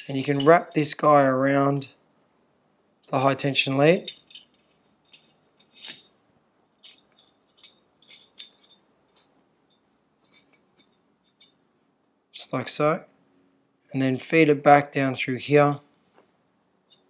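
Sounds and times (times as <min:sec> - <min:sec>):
cable brushing: 0:04.0 - 0:11.6.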